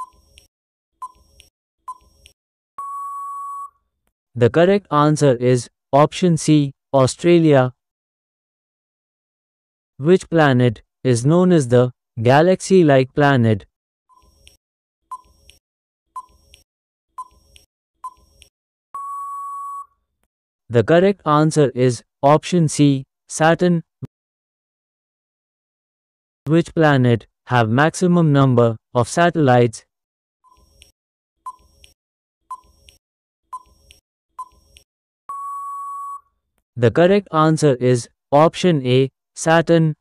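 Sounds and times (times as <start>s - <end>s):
steady electronic beep: 0.0s - 0.2s, 2.8s - 3.7s, 19.0s - 19.9s, 35.3s - 36.2s
timer beep-like tick: 0.0s - 3.7s, 31.5s - 33.0s, 33.6s - 36.2s.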